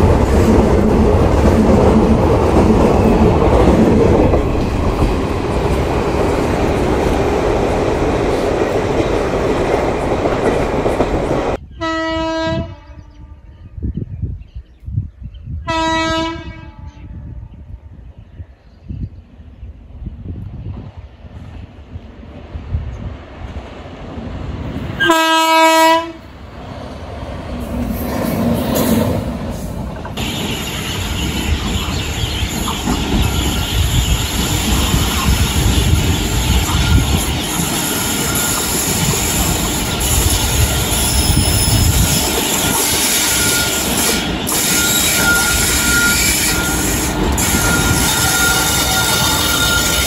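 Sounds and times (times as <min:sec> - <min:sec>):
train wheels rumbling on rails: 0:00.0 - 0:11.6, 0:20.2 - 0:50.0
train horn blast: 0:11.7 - 0:13.5, 0:15.7 - 0:17.4, 0:25.0 - 0:26.3, 0:47.4 - 0:50.0
high wheel squeal: 0:30.2 - 0:50.0.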